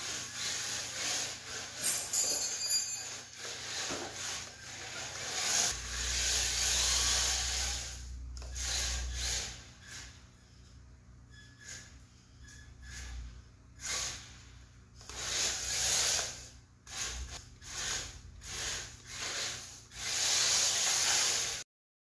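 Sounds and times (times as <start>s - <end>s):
rc car tyre scrub and drivetrain: 17.6s - 21.6s.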